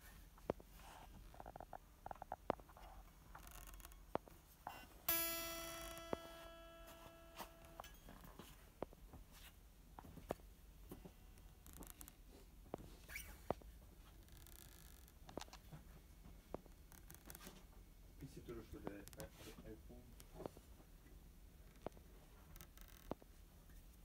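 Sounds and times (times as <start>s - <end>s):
guitar string plucked: 3.4s - 8.9s
clicks and taps of guitar handling: 3.5s - 11.2s.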